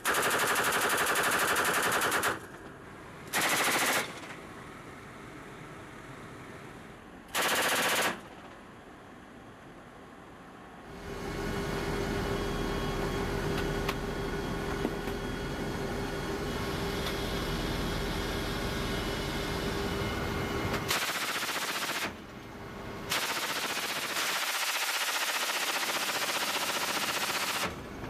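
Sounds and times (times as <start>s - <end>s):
heavy machine gun firing bursts: 0.0s - 2.5s, 3.3s - 4.3s, 7.3s - 8.4s, 20.9s - 22.2s, 23.1s - 27.8s
aircraft engines and rotors droning: 0.0s - 28.0s.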